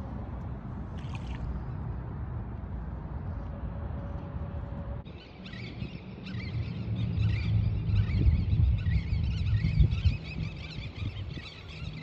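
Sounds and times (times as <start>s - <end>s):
shallow water sloshing and lapping: 0.8s - 1.8s.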